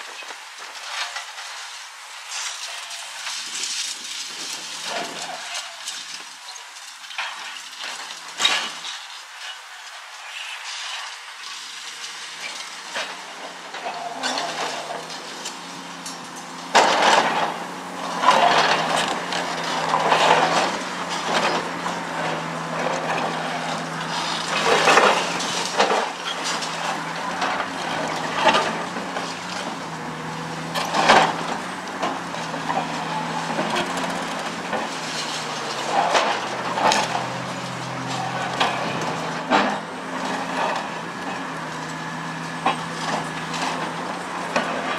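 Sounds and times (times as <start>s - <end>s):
diesel engine running under load: 11.8s - 44.9s
concrete cracking and rubble falling: 18.1s - 29.8s.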